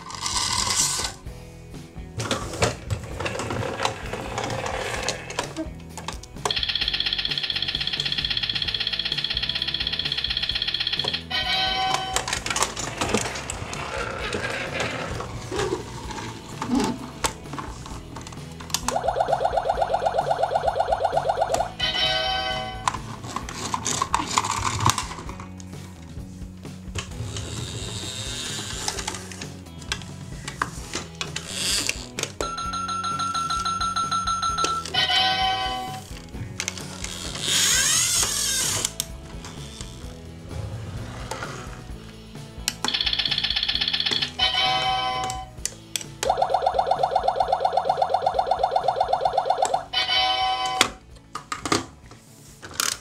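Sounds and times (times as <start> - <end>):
plastic toy car clicking and scraping: 0.0 - 1.2, 2.2 - 6.3, 12.0 - 18.9, 22.8 - 25.7, 27.0 - 32.3, 36.5 - 40.0, 51.4 - 53.0
background music: 0.0 - 53.0
toy clicks: 6.1 - 12.8, 42.7 - 50.9.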